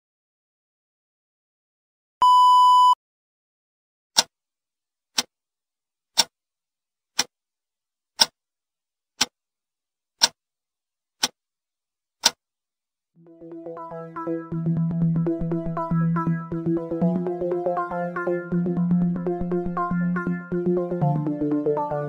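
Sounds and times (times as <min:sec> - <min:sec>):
test-tone beep: 0:02.2 - 0:03.0
clock ticking: 0:08.2 - 0:08.4, 0:12.2 - 0:12.4.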